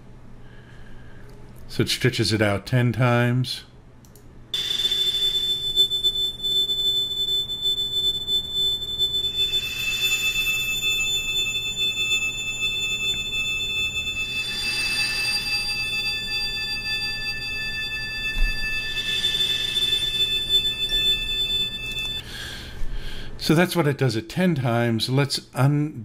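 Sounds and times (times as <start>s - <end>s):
drone of high ringing chime tones: 4.6s - 22.3s.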